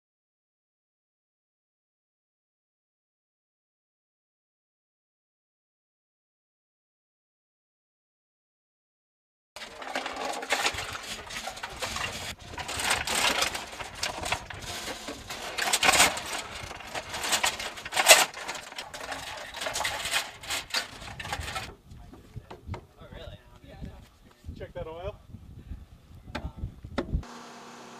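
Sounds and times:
ammunition belt rattling and clinking: 9.6 - 21.7.

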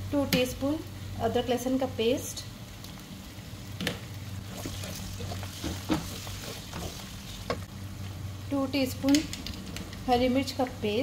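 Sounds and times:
steady low hum: 0.0 - 11.0
food sizzling in oil: 0.8 - 8.4
wooden spoon stirring and scraping: 4.4 - 7.7.

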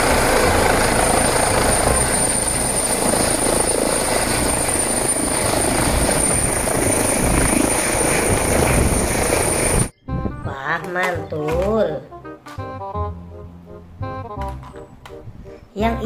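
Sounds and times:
helicopter rotor and turbine noise: 0.0 - 9.9
high turbine whine: 0.0 - 9.9.

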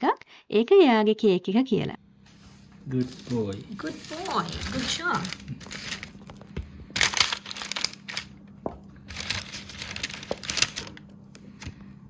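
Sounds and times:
crinkling and rustling: 2.3 - 11.9.

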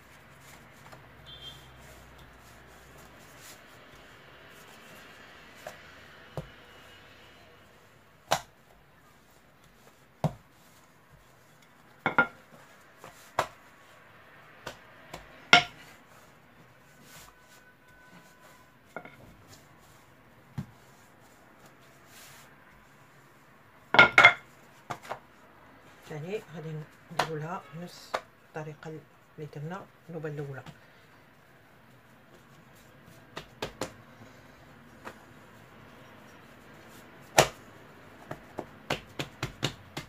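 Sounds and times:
dough and flour rustling: 0.0 - 40.0
rolling pin knocking on stone counter: 12.1 - 12.4, 15.5 - 15.8, 24.0 - 24.4.

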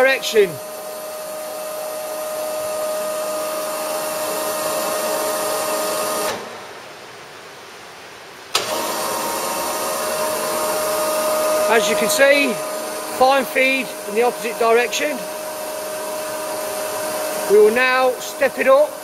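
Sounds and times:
machine hum with high whine: 0.0 - 19.0.

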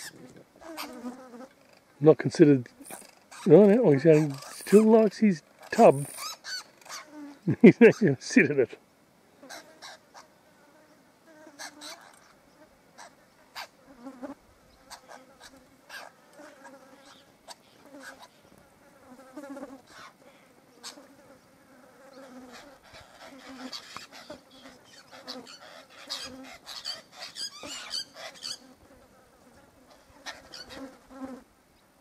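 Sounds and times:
flies buzzing past: 0.0 - 31.6.

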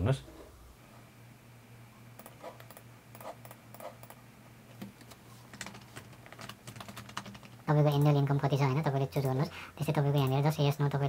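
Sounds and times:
low steady hum: 0.0 - 11.0.

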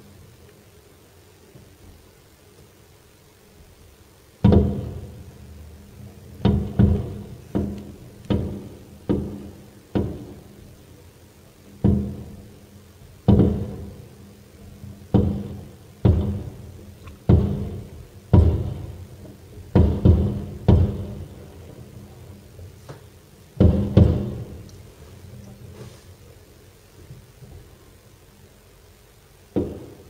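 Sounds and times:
firework booms with echo: 4.4 - 5.3, 15.2 - 19.1, 19.7 - 21.6, 23.6 - 24.7.

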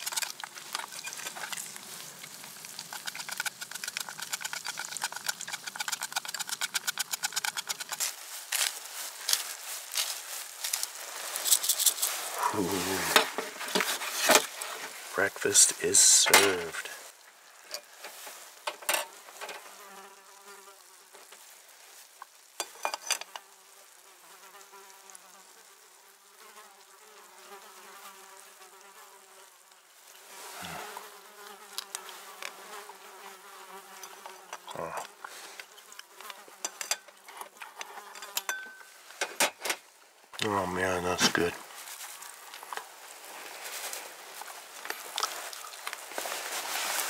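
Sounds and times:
fly buzzing: 0.0 - 8.7, 10.6 - 21.4, 22.4 - 38.8.

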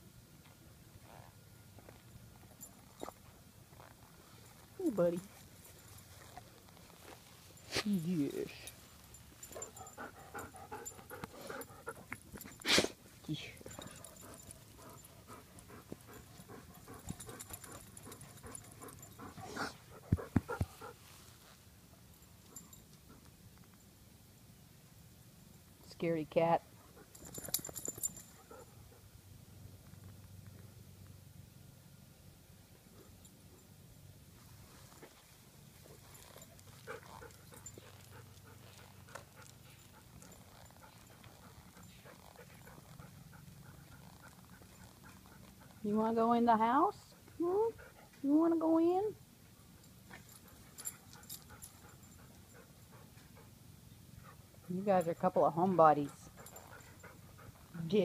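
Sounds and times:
rustling of petting: 0.4 - 23.8, 34.3 - 46.3
dog panting: 9.4 - 12.7, 13.6 - 21.0, 35.9 - 45.9, 46.9 - 48.2, 50.1 - 58.0.

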